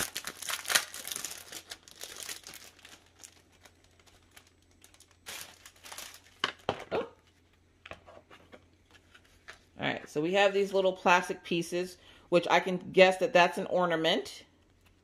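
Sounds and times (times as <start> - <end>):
packaging crinkling: 0.0 - 7.5.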